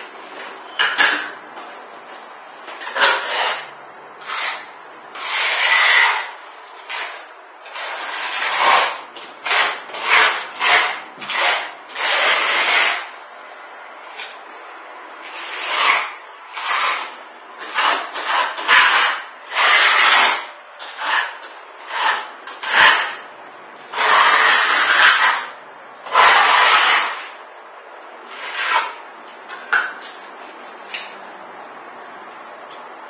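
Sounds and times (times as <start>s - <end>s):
trowel scraping over concrete: 2.6s - 13.2s, 15.2s - 23.2s, 23.8s - 27.4s, 28.3s - 30.2s.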